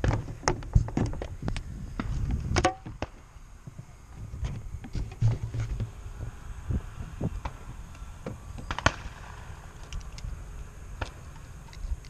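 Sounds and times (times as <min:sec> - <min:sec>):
clicks and knocks on model airplane: 0:00.0 - 0:03.1.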